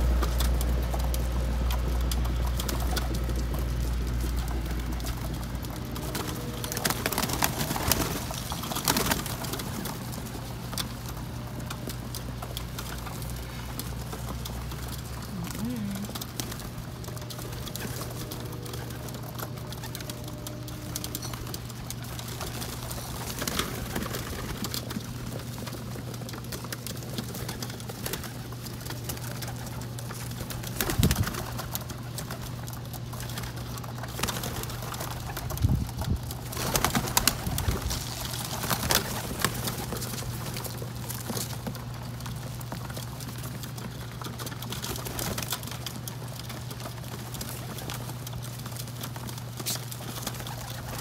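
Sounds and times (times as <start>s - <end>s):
pigeon wings flapping: 0.0s - 51.0s
pigeons cooing: 0.0s - 51.0s
steady low hum: 0.0s - 51.0s.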